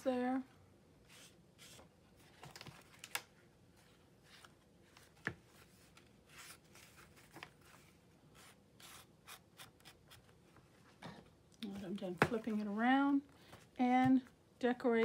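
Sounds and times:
paper and card rustling: 3.9s - 10.2s.

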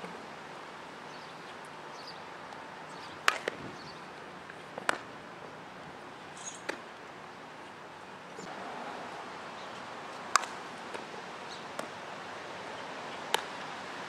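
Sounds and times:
outdoor background noise: 0.0s - 14.0s
ball being hit and caught: 3.3s - 3.6s, 4.8s - 5.1s, 6.6s - 6.8s, 10.3s - 11.1s, 11.7s - 12.0s, 13.3s - 13.6s.

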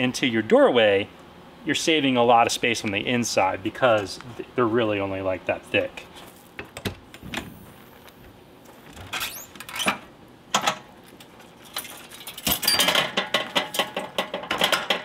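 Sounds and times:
metal steps knocking and clanking: 12.4s - 15.0s.

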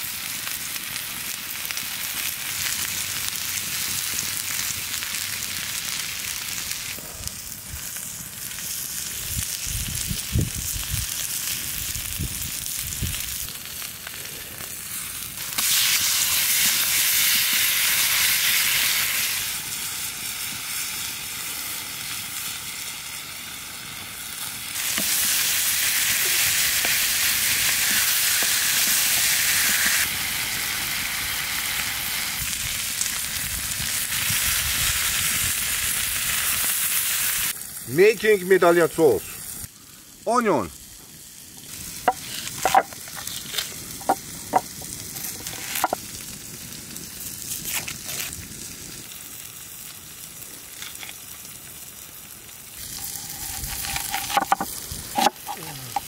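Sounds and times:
steaks sizzling: 0.0s - 56.0s.

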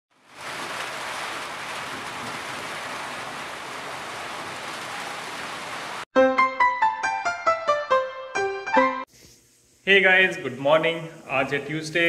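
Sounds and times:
steady rain falling: 0.1s - 6.1s.

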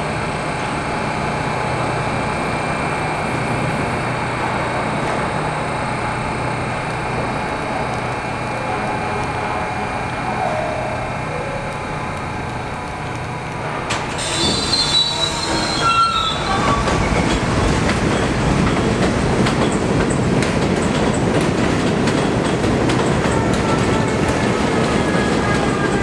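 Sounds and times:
subway train wheels rumbling on rail: 0.0s - 26.0s
wheel squeal: 14.1s - 17.6s.

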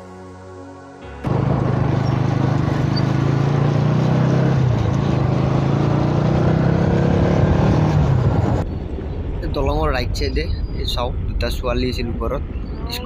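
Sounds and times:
motorcycle engine humming: 1.2s - 9.4s
wind and road noise: 1.2s - 13.0s.

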